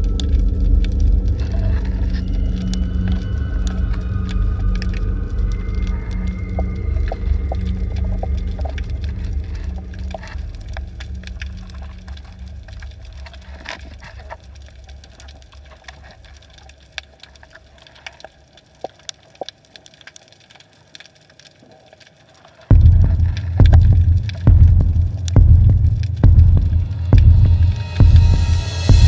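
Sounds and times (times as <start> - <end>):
low underwater hum: 0.0 - 29.0
sharp clicks and crackles: 0.0 - 29.0
loud low rumble: 22.7 - 29.0.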